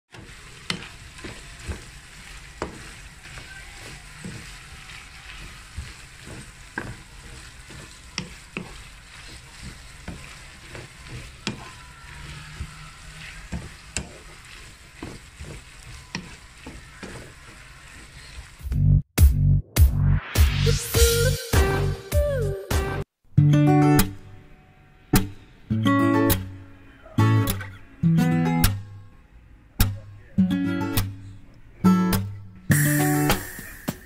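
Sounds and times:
wooden spatula knocking and scraping pan: 0.1s - 18.5s
food sizzling in a frying pan: 0.1s - 18.7s, 32.7s - 34.0s.

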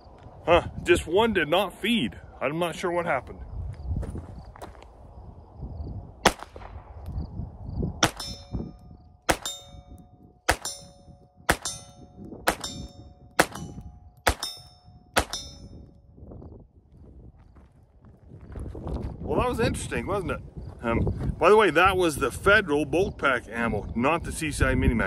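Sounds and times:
pistol shots: 6.2s - 6.9s, 8.0s - 8.5s, 9.3s - 9.8s, 10.5s - 15.6s
steel target ringing: 8.0s - 16.0s.

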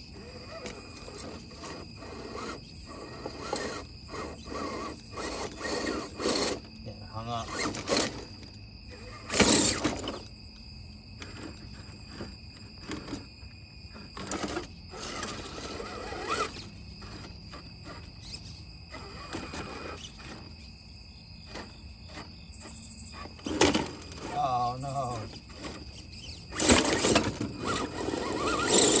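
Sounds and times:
electric motor whirring: 0.0s - 10.3s, 13.9s - 20.6s, 21.4s - 29.0s
tyres scraping on stone: 0.4s - 6.7s, 11.2s - 13.4s, 21.4s - 29.0s.

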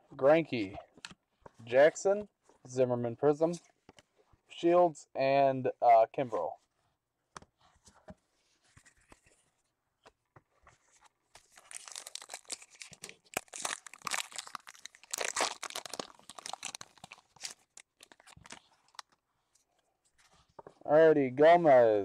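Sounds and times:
wrapper crinkling: 11.4s - 19.2s.

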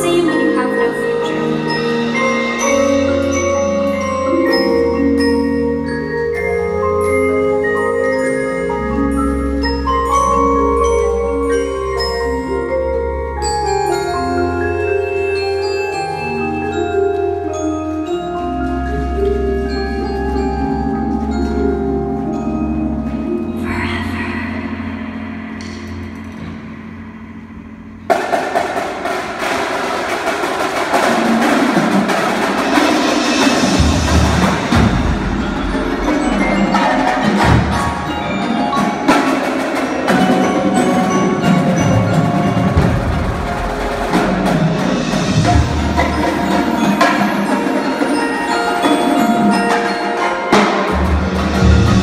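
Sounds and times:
marimbas and vibraphones: 0.0s - 52.0s
percussion ensemble playing: 0.0s - 52.0s
marching drumline: 14.2s - 23.3s, 28.0s - 52.0s.

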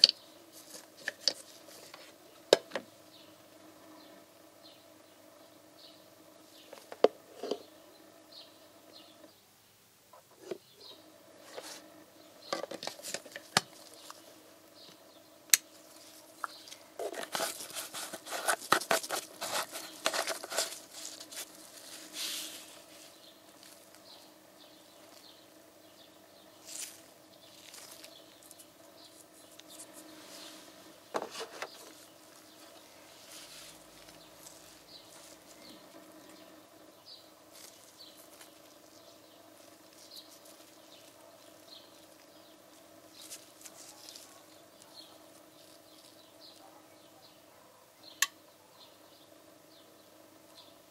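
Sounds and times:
faint steady hum: 0.0s - 50.9s
rattling and crinkling: 15.9s - 24.1s, 31.1s - 36.0s.

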